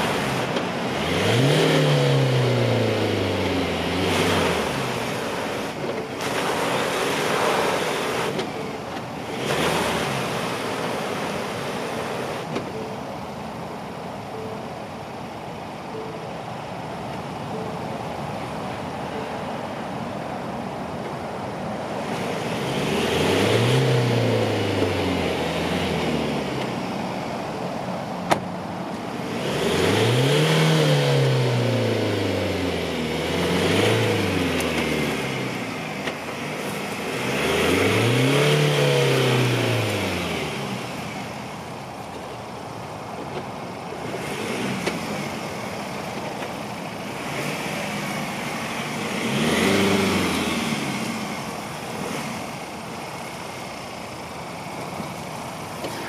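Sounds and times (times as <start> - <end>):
pickup engine revving: 0.0 - 12.5, 22.0 - 41.8, 43.9 - 56.0.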